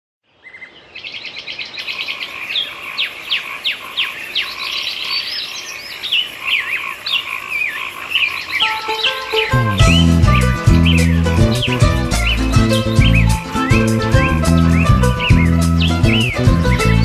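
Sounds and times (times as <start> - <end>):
birds chirping: 0.3 - 17.0
warbled bird notes: 8.1 - 17.0.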